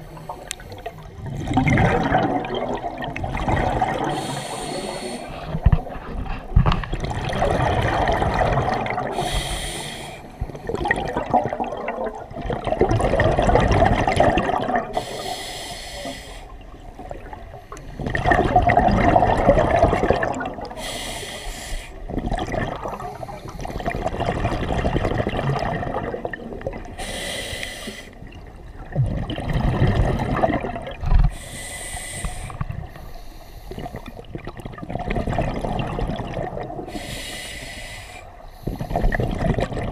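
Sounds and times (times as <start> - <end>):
bubbling exhale: 0.0 - 16.6, 29.0 - 39.9
hissing regulator inhale: 4.1 - 5.7, 9.1 - 10.4, 15.0 - 16.6, 20.8 - 22.0, 27.0 - 28.2, 31.3 - 34.2, 36.9 - 39.2.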